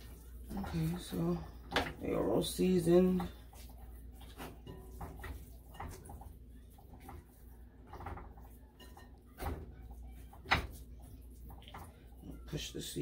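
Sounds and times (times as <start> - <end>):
hands rubbing wet fish: 2.5 - 8.6.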